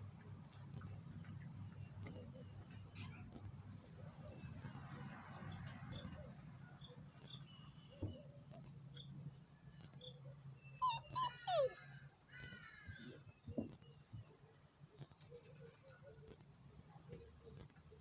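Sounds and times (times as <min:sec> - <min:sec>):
puppies yelping and whining: 0:10.8 - 0:11.8
low puppy yelp: 0:10.8 - 0:11.9.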